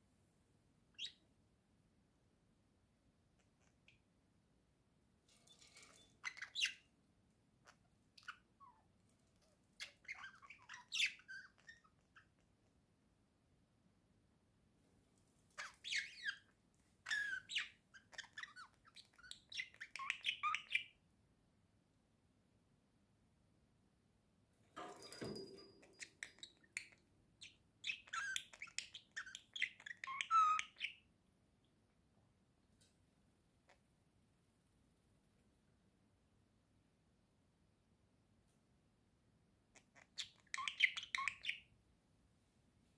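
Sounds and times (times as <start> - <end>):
budgerigar chirping and chattering: 9.8 - 12.4, 15.6 - 16.5, 17.1 - 21.0, 27.4 - 31.0, 39.8 - 41.7.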